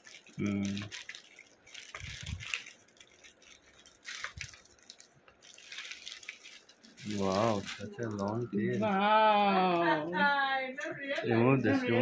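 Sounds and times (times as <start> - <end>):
plastic bag crinkling: 0.0 - 9.0.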